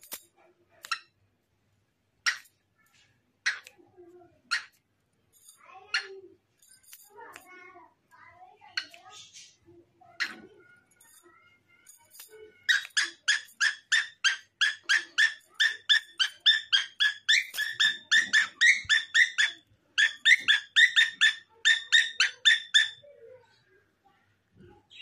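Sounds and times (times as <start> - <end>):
parrot calling: 12.6 - 23.1.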